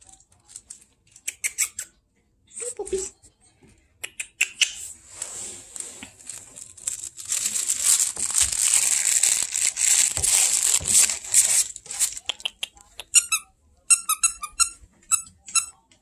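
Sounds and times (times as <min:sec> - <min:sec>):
plush toy crinkling and rustling: 0:00.0 - 0:01.3, 0:04.9 - 0:12.5.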